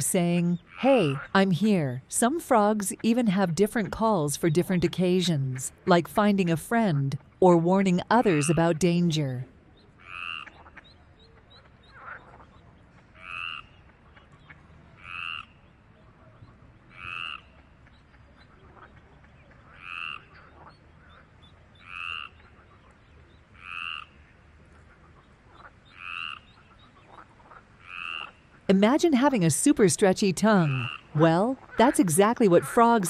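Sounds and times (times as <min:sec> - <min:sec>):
frog croaking: 0:00.0 - 0:01.6, 0:07.9 - 0:09.0, 0:10.0 - 0:10.8, 0:13.2 - 0:13.8, 0:15.0 - 0:15.6, 0:16.9 - 0:17.6, 0:19.7 - 0:21.2, 0:21.8 - 0:22.6, 0:23.6 - 0:24.2, 0:25.6 - 0:26.5, 0:27.1 - 0:28.4, 0:30.3 - 0:33.0.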